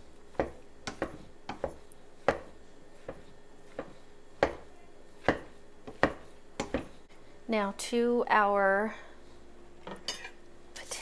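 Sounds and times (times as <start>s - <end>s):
masher squishing potatoes in pot: 0.0s - 7.1s.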